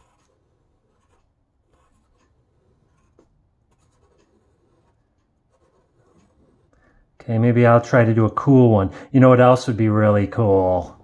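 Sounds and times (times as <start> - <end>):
pencil scratching on paper: 0.0 - 8.2.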